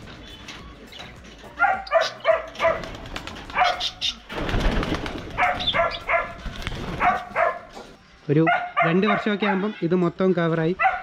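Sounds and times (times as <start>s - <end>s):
dog barking: 1.6s - 2.9s, 3.5s - 4.0s, 5.4s - 7.8s, 8.4s - 9.8s, 10.8s - 11.0s.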